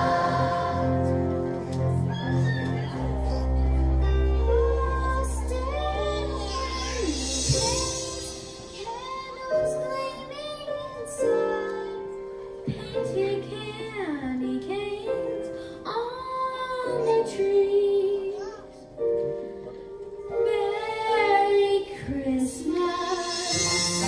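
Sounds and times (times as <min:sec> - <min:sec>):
children's choir singing: 0:00.0 - 0:01.8, 0:04.2 - 0:11.7, 0:20.3 - 0:24.0.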